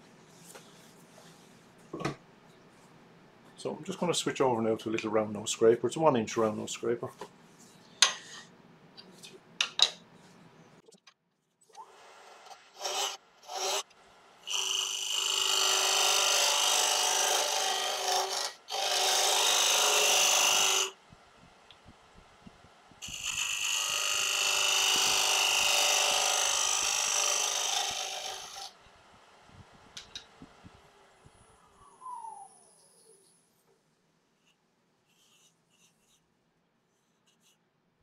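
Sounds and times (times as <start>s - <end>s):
scraper cutting wood on lathe: 14.5s - 20.9s, 23.0s - 28.7s.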